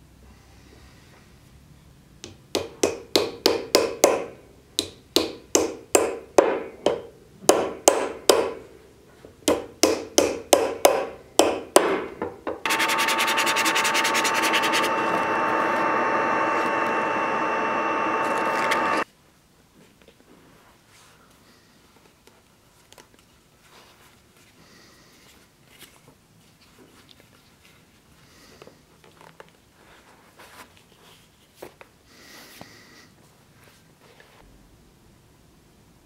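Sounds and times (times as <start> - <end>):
hammer striking wooden wedge: 2.2 - 8.6, 9.5 - 12.1
power tool running: 12.7 - 19.0.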